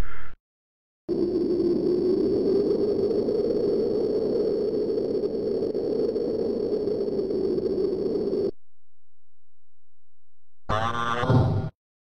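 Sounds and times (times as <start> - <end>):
steady rushing noise: 1.1 - 8.5.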